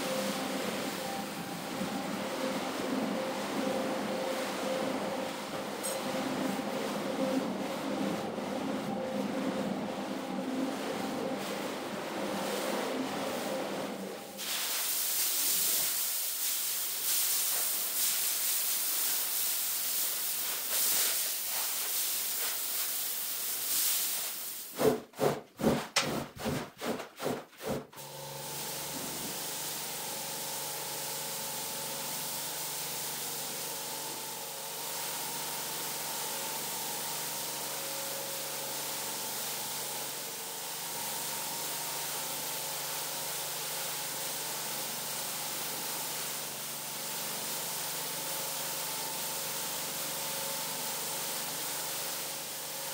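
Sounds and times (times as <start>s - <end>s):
pressure-washer jet hissing: 14.4s - 24.7s
pump hum: 28.0s - 52.9s.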